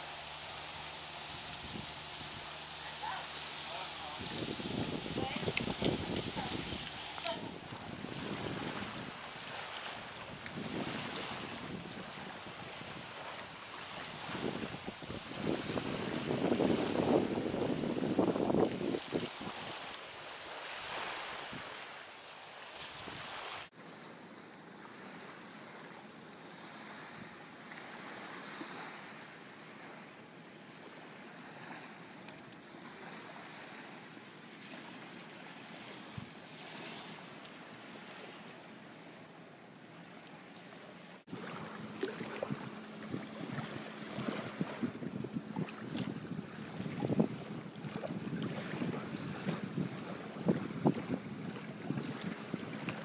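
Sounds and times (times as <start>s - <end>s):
sea water: 0.0s - 53.0s
wind gusts on microphone: 3.8s - 20.0s, 42.2s - 53.0s.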